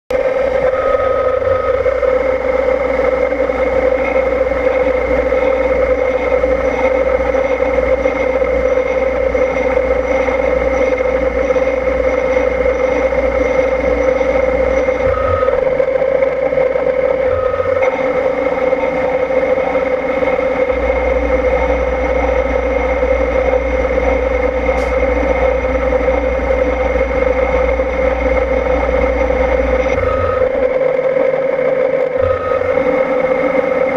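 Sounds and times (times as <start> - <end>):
milling machine spindle whine: 0.1 - 33.9.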